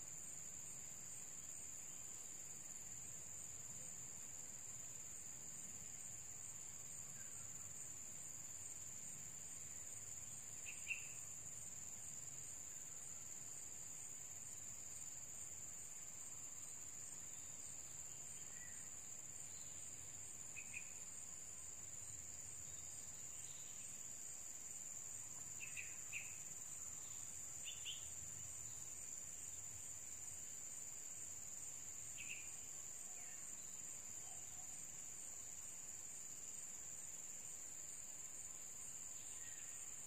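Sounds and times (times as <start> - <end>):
insect trilling: 10.6 - 11.3.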